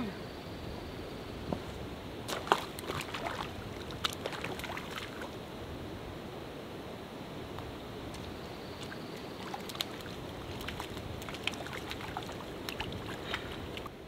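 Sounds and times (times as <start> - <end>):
creek rushing: 1.8 - 14.0
fish splashing at water surface: 2.3 - 5.3, 8.2 - 13.9.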